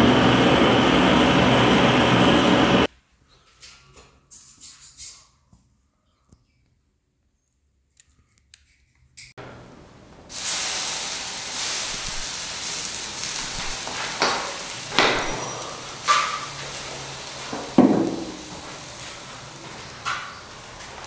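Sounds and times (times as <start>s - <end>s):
hot light bulbs sizzling and hissing: 10.3s - 21.0s.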